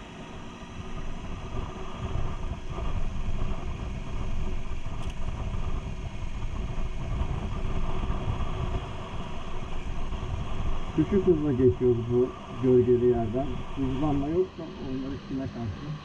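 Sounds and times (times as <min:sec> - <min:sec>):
motorcycle engine running: 0:00.0 - 0:16.0
wind and road noise: 0:00.0 - 0:16.0.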